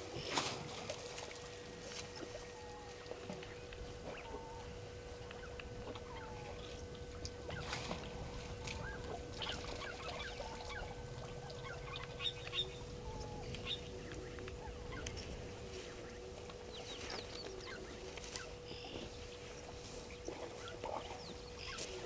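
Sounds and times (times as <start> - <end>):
faint steady hum: 0.0 - 22.0
birds chirping: 1.4 - 22.0.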